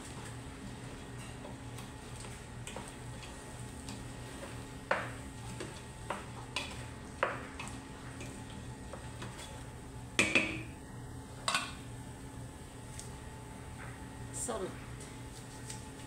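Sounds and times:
wooden spoon stirring in pot: 0:00.0 - 0:10.4
spoon knocking against pot: 0:10.2 - 0:10.7.

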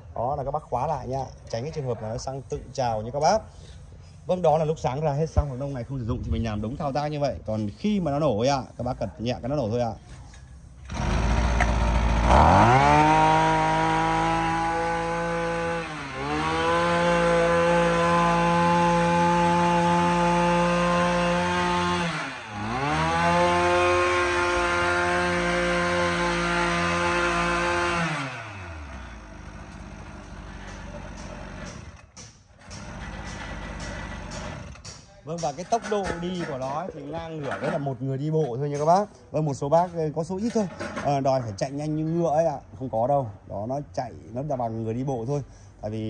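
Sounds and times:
small two-stroke engine revving: 0:10.8 - 0:32.0.

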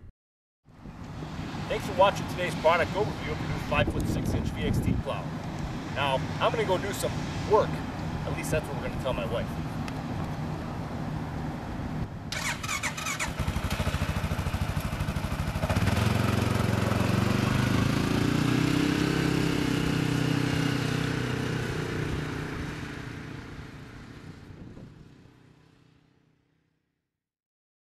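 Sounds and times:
quad bike engine running: 0:12.3 - 0:25.4.

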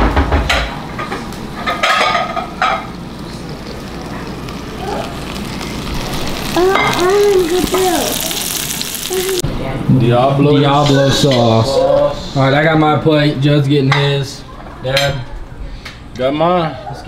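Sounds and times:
pot and dish clatter: 0:00.4 - 0:03.0
green beans sizzling in skillet: 0:01.5 - 0:09.4.

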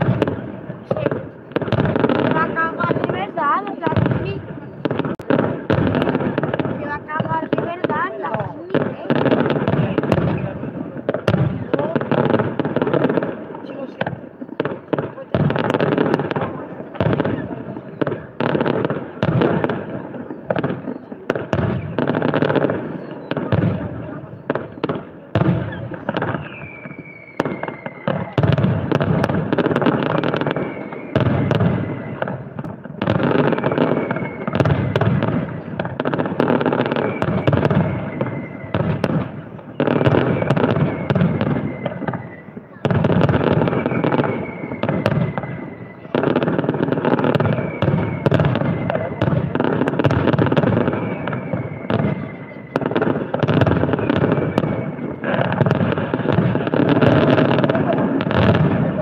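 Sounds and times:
fireworks bangs and crackling: 0:00.0 - 0:59.0
falling whistle: 0:25.7 - 0:28.5, 0:30.2 - 0:32.6, 0:33.3 - 0:35.0, 0:36.8 - 0:39.1, 0:39.7 - 0:42.8, 0:43.4 - 0:46.6, 0:47.2 - 0:49.5, 0:50.5 - 0:55.2.

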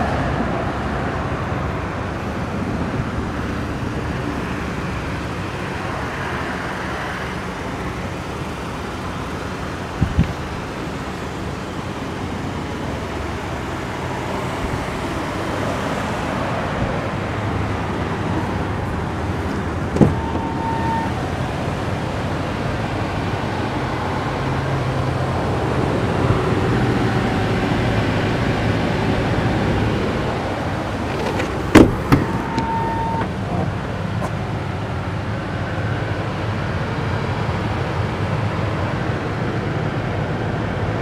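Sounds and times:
traffic noise: 0:00.0 - 0:41.0
short beep: 0:32.4 - 0:33.3.

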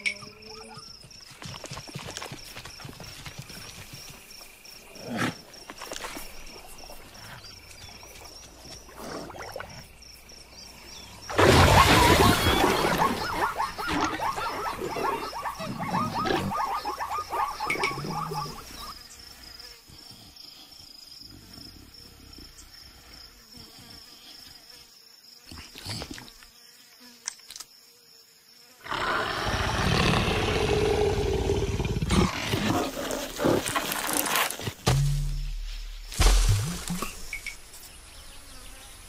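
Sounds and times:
rough growling: 0:28.9 - 0:34.6.

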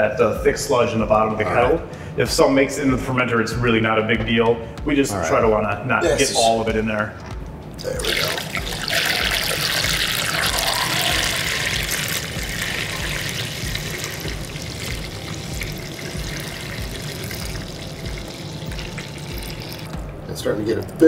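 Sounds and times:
liquid pouring into glass container: 0:07.8 - 0:20.0.

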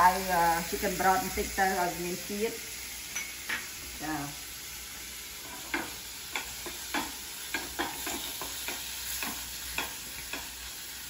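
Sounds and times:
meat sizzling in a frying pan: 0:00.0 - 0:11.0
spatula scraping and knocking pan: 0:05.4 - 0:10.6.

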